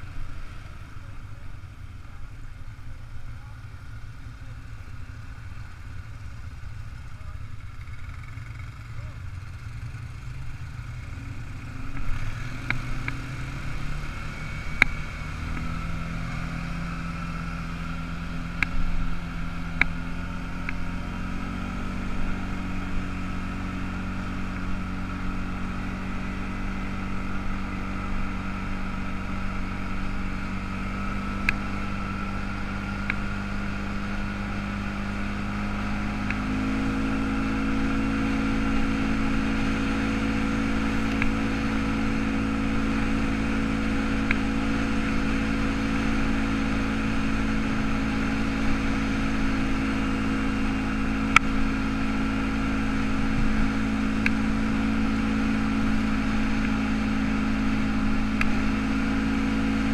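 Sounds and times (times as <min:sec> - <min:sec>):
atv engine on gravel road: 0:00.0 - 0:59.9.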